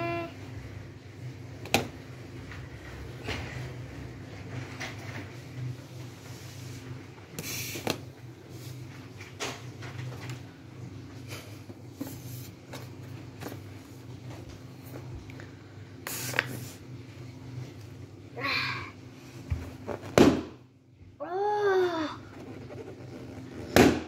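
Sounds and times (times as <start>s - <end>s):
hands rubbing balloon on table: 22.2s - 24.0s.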